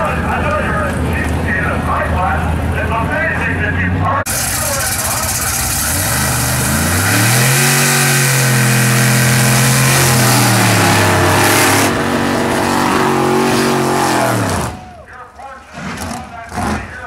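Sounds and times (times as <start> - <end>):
car engine revving: 4.3 - 14.8.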